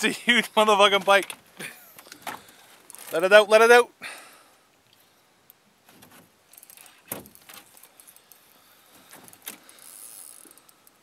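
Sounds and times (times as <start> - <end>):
fishing gear clattering: 1.0 - 3.3, 6.0 - 11.0.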